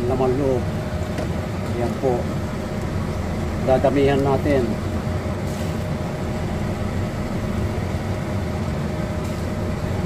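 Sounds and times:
faint constant hum: 0.0 - 10.0
pot boiling with low rumble: 0.0 - 10.0.

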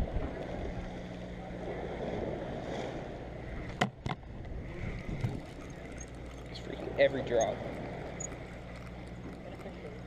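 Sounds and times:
low steady hum: 0.0 - 10.0
wind on microphone: 3.6 - 6.2
fishing reel being cranked: 5.0 - 10.0.

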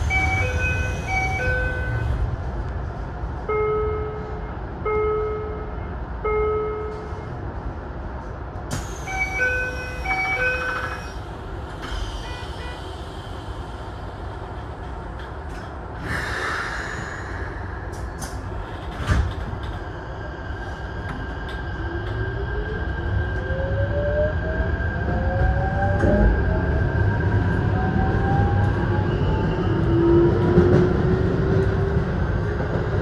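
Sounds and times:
electric train humming: 0.0 - 7.9.

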